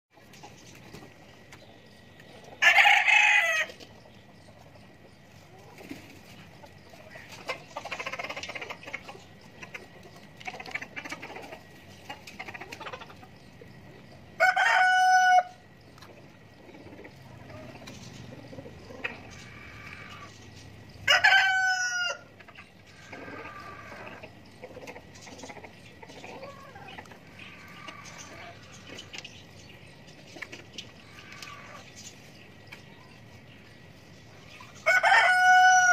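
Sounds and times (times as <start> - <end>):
chickens clucking softly: 0.2 - 35.9
rooster crowing: 2.6 - 3.7, 14.4 - 15.6, 21.0 - 22.3, 34.8 - 35.9.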